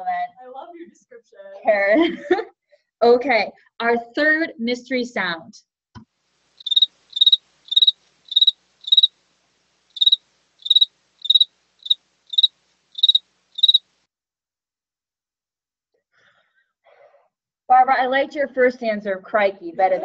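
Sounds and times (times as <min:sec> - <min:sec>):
field cricket chirping: 0:06.6 - 0:13.9.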